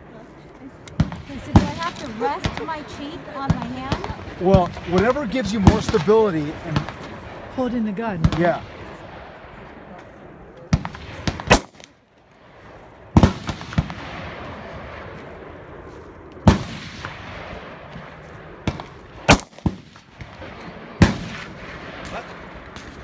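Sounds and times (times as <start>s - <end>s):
gunshots with short echo: 10.7s - 12.0s, 16.4s - 23.0s.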